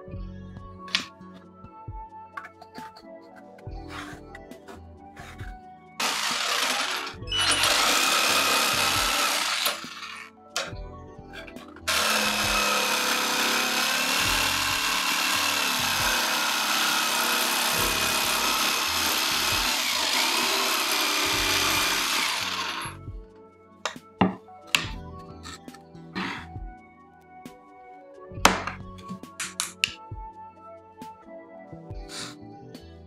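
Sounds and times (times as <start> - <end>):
electric jigsaw sawing wood: 6.0 - 10.7, 11.8 - 23.0.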